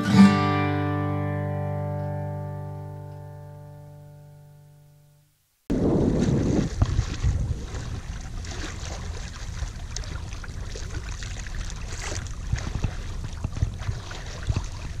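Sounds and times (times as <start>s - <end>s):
small water splashes: 5.7s - 15.0s
water rushing along a hull: 5.7s - 15.0s
wind rumbling on microphone: 5.7s - 15.0s.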